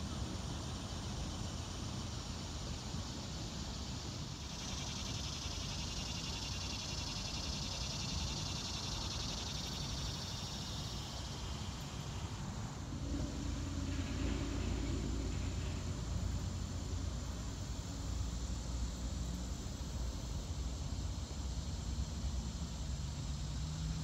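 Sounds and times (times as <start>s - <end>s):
cicada buzzing: 0.4s - 24.0s
wind rumble on microphone: 12.7s - 17.5s.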